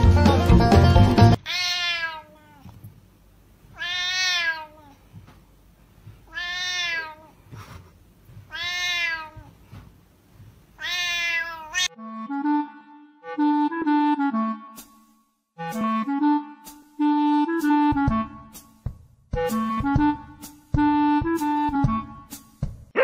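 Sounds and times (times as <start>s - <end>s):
cat meowing loudly: 1.4s - 2.8s, 3.8s - 5.0s, 6.3s - 7.4s, 8.5s - 9.6s, 10.8s - 11.9s.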